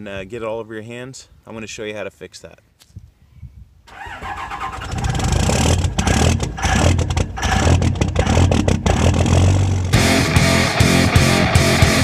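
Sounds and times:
diesel truck engine revving: 3.9 - 12.0.

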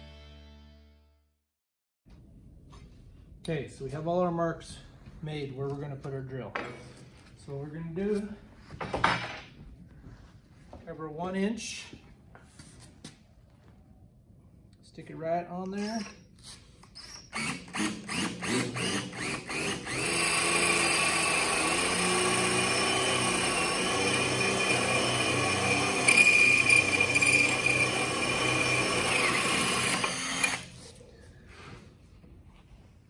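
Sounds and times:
cordless drill boring wood: 17.0 - 30.8.

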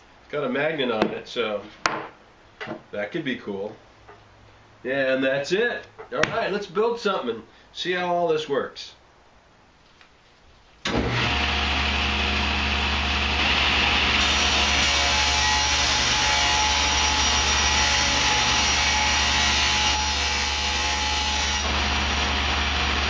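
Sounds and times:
saw cutting wood: 10.9 - 23.0
table saw running: 10.9 - 23.0.

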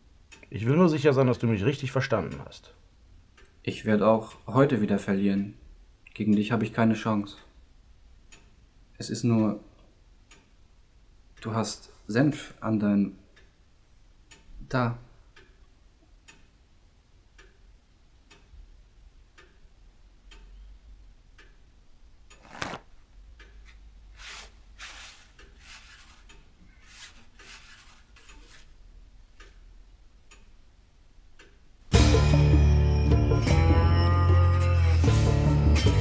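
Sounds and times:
clock ticking: 0.0 - 2.6, 3.3 - 6.7, 8.2 - 12.6, 13.2 - 22.4, 23.2 - 31.9
paper napkin rustling: 22.4 - 22.9, 24.1 - 28.7.

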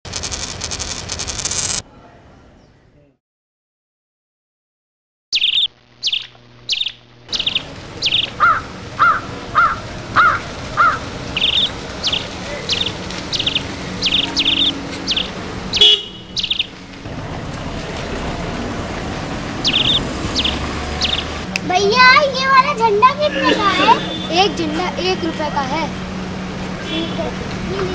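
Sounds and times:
lower bending bird calls: 5.3 - 16.8, 19.6 - 21.4
birds chirping: 5.3 - 17.0, 19.5 - 21.5.

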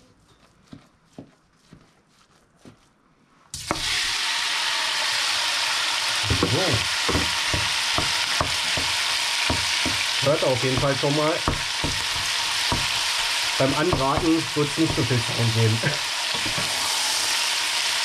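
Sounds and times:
meat sizzling in a pot: 3.6 - 18.0
wooden spoon knocking plastic bowl: 6.3 - 10.1, 10.7 - 13.0, 13.8 - 15.2.

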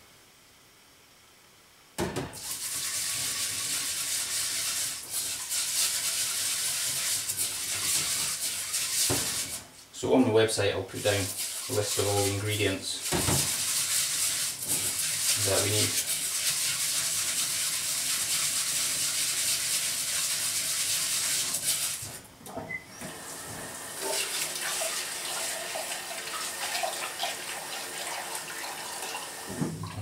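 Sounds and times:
tap running into steel bowl: 9.0 - 9.5
hands swishing rice in water: 10.9 - 22.0.

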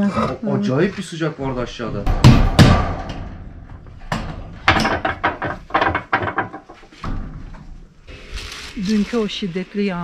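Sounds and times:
loud knocks: 2.0 - 7.6.

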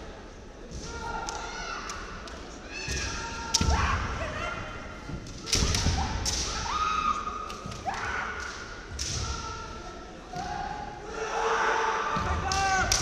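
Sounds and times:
bamboo swords clacking: 3.4 - 3.9, 5.2 - 9.6
fighters shouting: 9.2 - 13.0.

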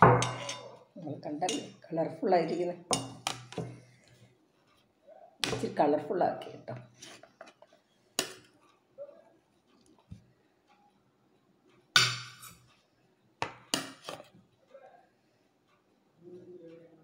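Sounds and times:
metal spoon clinking on plate: 0.0 - 0.8, 1.5 - 1.8, 2.9 - 3.7, 12.0 - 12.7.

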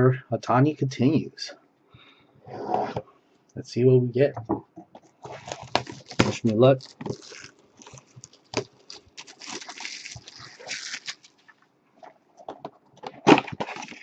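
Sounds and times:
cardboard scraping: 2.5 - 3.0, 5.2 - 11.5, 13.1 - 14.0
plastic wrap crinkling: 5.2 - 11.6, 13.1 - 14.0.

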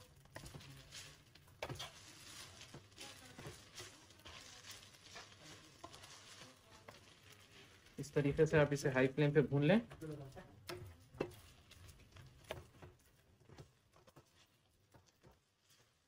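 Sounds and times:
food sizzling in a pan: 0.0 - 16.0
spatula scraping and knocking: 0.0 - 16.0.

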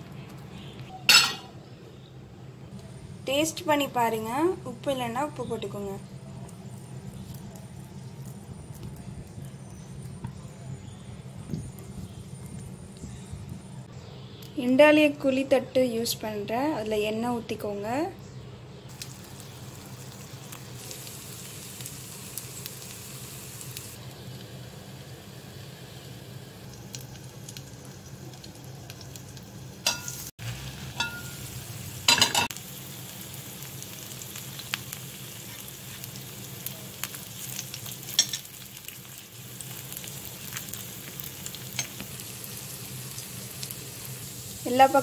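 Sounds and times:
batter sizzling in oil: 3.3 - 10.3, 18.9 - 45.0.

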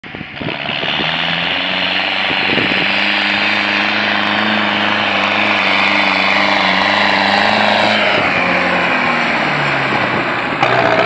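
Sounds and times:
tractor diesel engine knocking: 9.0 - 11.0.

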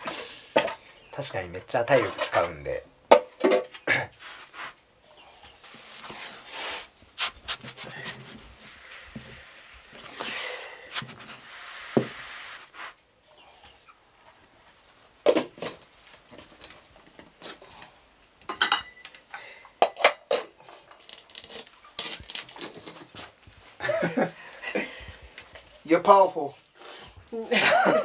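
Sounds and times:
metal pots and lids clinking: 18.4 - 19.2, 19.8 - 20.5.

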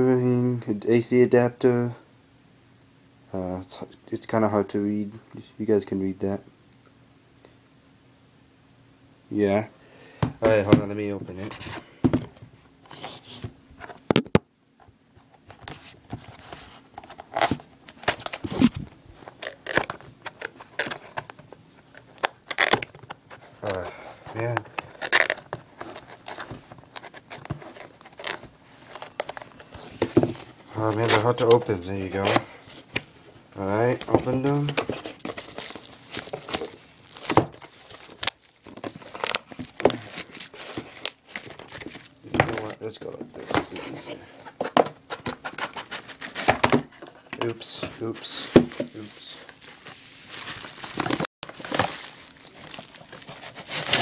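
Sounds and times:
cardboard box crinkling and tearing: 16.2 - 29.6, 33.9 - 42.7, 45.2 - 54.0.

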